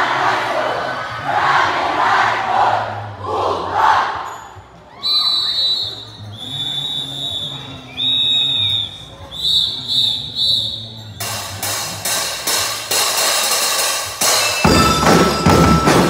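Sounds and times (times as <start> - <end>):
whistle blasts: 4.9 - 11.7.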